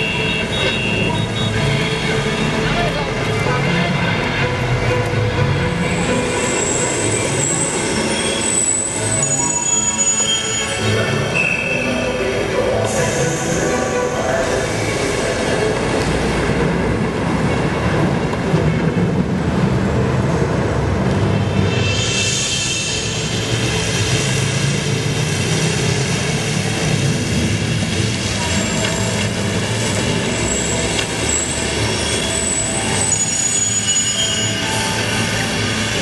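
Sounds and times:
train rumbling past: 0.0s - 36.0s
high thin wheel squeal: 5.9s - 12.2s, 21.6s - 24.1s, 30.1s - 36.0s.

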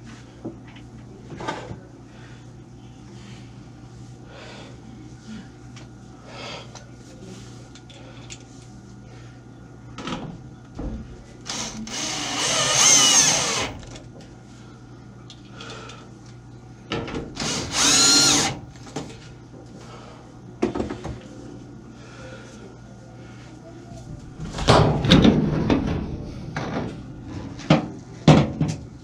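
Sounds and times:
power drill driving screws: 11.5s - 13.9s, 17.4s - 18.6s.

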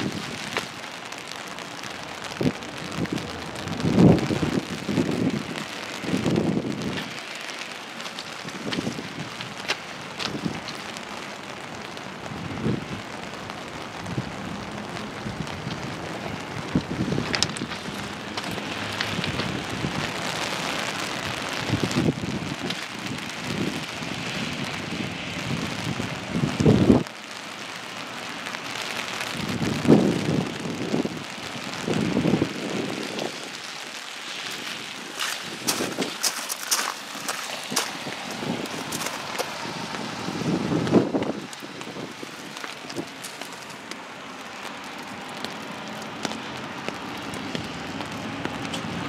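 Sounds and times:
rain and wind hiss: 0.0s - 49.0s
wind buffeting thumps: 2.2s - 11.2s, 13.8s - 27.1s, 34.4s - 43.9s.

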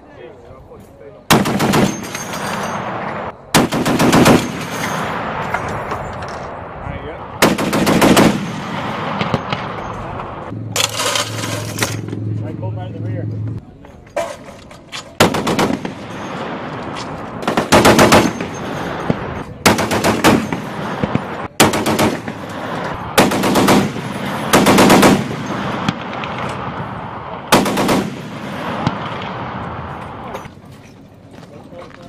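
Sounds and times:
heavy machine gun bursts: 3.6s - 5.0s, 17.4s - 21.0s, 23.2s - 26.4s, 27.5s - 28.4s.

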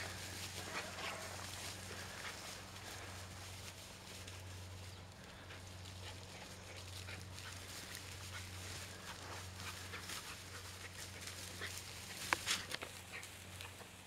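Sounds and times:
grass rustling and swishing: 0.0s - 14.0s
steady low hum: 0.0s - 14.0s.

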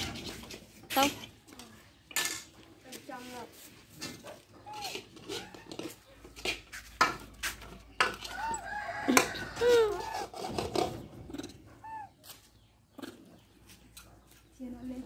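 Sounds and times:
rising and falling animal calls: 11.3s - 12.2s.

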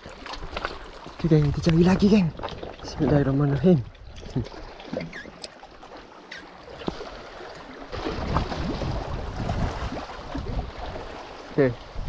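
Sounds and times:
water sloshing against rocks: 0.0s - 12.0s
wind buffeting microphone: 8.0s - 11.2s.

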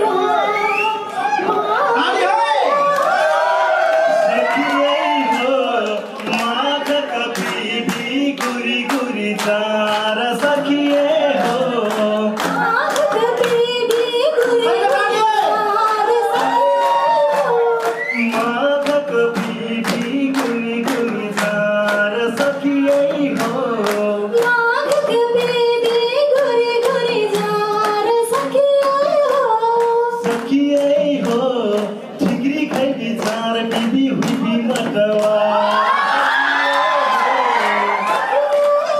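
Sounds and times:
man and woman singing: 3.7s - 26.0s, 26.6s - 38.9s
hand drum beat: 18.2s - 27.9s, 30.2s - 35.5s.

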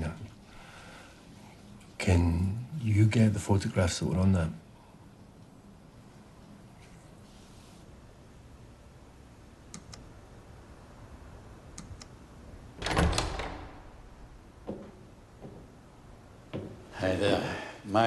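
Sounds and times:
faint clicks: 9.7s - 10.1s
door latch and handle clatter: 12.8s - 13.9s.

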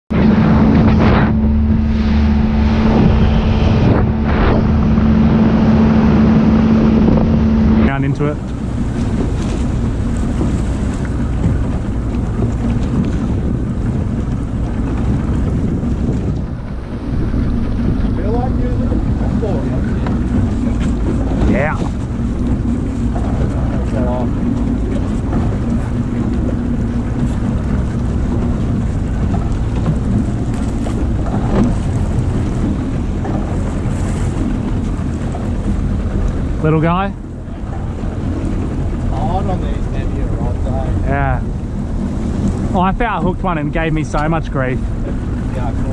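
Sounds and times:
choppy sea washing around boat: 0.1s - 45.9s
wind buffeting microphone: 0.1s - 45.9s.

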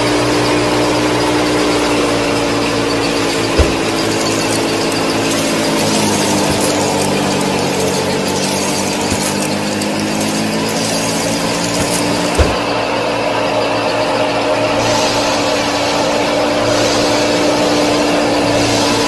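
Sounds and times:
small motor whining and rattling: 0.0s - 19.0s.

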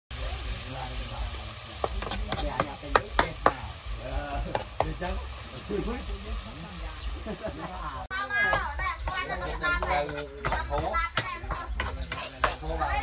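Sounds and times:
steady hiss: 0.1s - 8.1s
utensil knocking against cookware: 8.5s - 12.8s.

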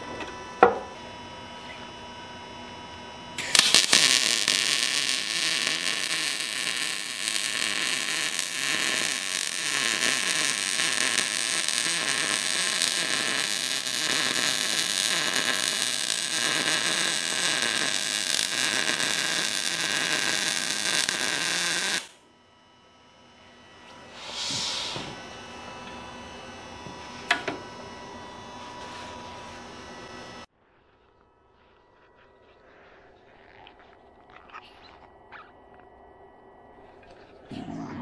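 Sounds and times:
welder arc crackling and hissing: 3.3s - 22.2s, 23.8s - 27.7s.

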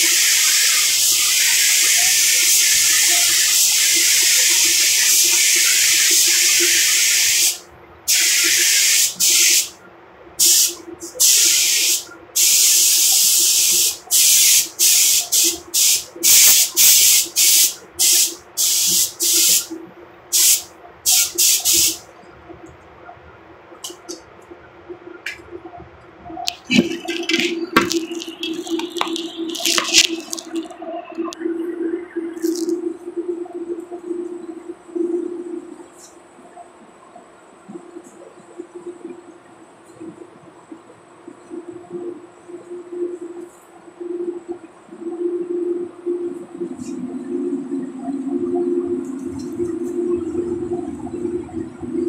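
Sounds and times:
paint spray gun hissing: 0.0s - 9.7s, 10.4s - 19.7s, 20.3s - 22.0s.

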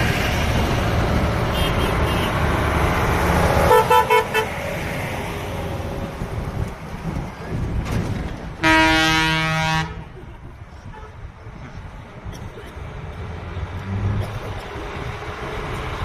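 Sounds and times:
heavy truck engine rumbling: 0.0s - 16.0s
truck horn short toots: 3.7s - 4.5s, 8.6s - 10.1s.

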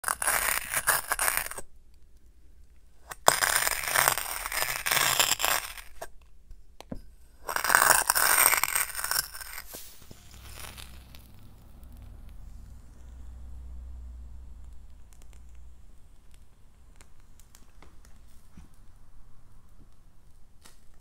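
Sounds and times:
jar crunching into packed sand: 3.1s - 6.1s, 7.4s - 11.8s.

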